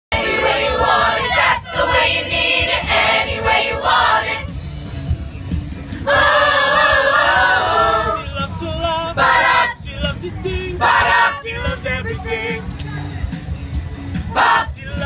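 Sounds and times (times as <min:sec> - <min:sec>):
choir singing a cappella: 0:00.1 - 0:04.5, 0:06.0 - 0:08.3, 0:08.9 - 0:09.9, 0:10.8 - 0:12.6, 0:14.3 - 0:14.8.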